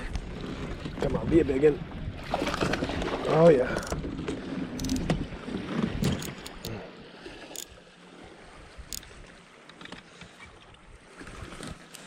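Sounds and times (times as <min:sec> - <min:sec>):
water: 0:00.0 - 0:12.0
fishing reel being cranked: 0:03.7 - 0:04.0, 0:04.8 - 0:05.1, 0:08.9 - 0:09.1.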